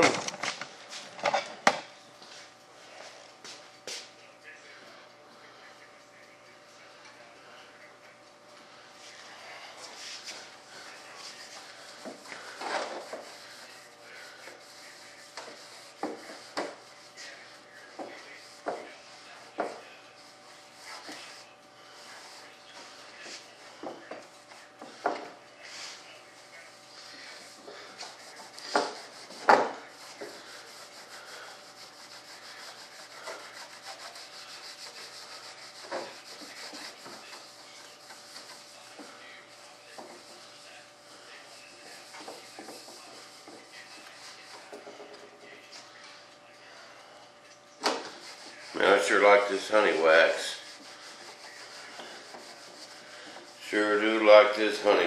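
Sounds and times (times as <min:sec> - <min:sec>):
scratchy rubbing by hand: 0:09.8 - 0:25.0, 0:25.6 - 0:45.4, 0:47.8 - 0:55.0.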